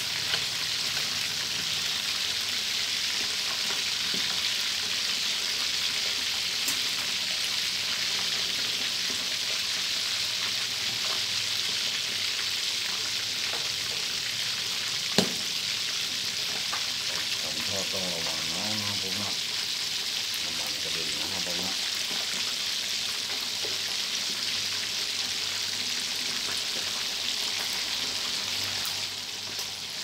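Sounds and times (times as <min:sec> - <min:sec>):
oil sizzling in a wok: 0:00.0 - 0:30.0
sharp pop of oil: 0:15.2 - 0:15.5.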